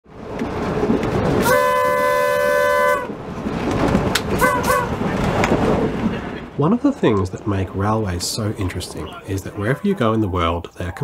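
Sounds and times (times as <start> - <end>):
train running on track: 0.1 - 11.0
train air horn: 1.4 - 3.2, 4.4 - 5.0.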